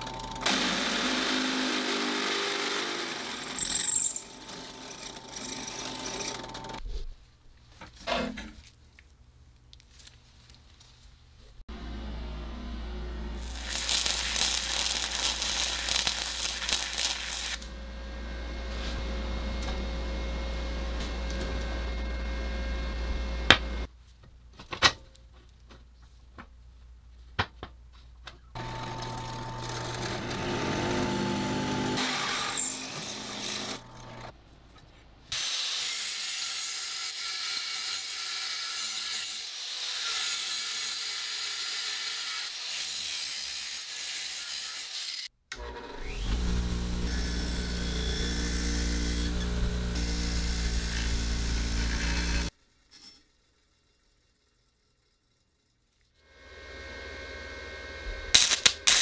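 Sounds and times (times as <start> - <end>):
angle grinder grinding steel: 0.0 - 6.8, 13.4 - 19.0, 28.6 - 34.3, 35.4 - 45.3, 46.0 - 53.3, 56.2 - 59.0
bench grinder humming: 0.0 - 6.8, 11.7 - 23.9, 28.6 - 34.3, 45.6 - 52.5, 56.2 - 59.0.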